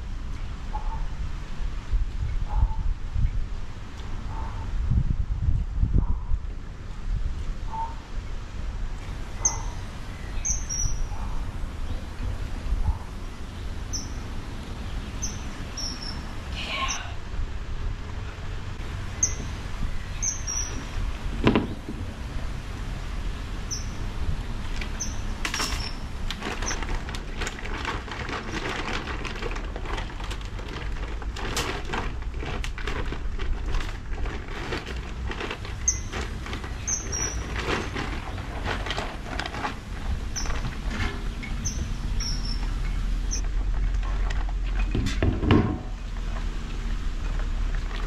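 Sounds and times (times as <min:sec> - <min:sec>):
small bird chirping: 0:09.4 - 0:11.2, 0:13.9 - 0:14.2, 0:15.2 - 0:17.1, 0:19.2 - 0:20.9, 0:35.8 - 0:36.1, 0:36.8 - 0:37.4, 0:41.4 - 0:43.4
thump: 0:21.4 - 0:22.0, 0:44.9 - 0:45.9
rustles and clicks: 0:24.5 - 0:48.0.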